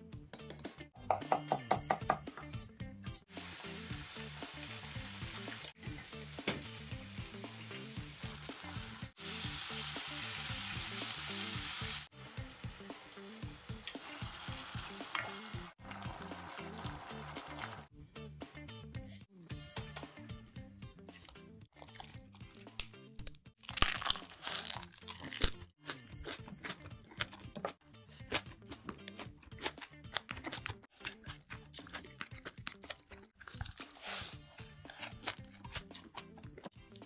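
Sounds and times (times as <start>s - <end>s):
food sizzling in frying pan: 3.3s - 17.9s.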